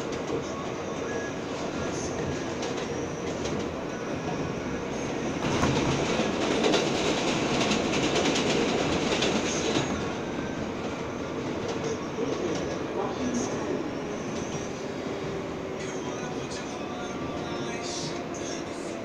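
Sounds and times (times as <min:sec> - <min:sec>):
passing subway train clicking: 0:00.0 - 0:19.0
subway train running on track: 0:00.0 - 0:19.0.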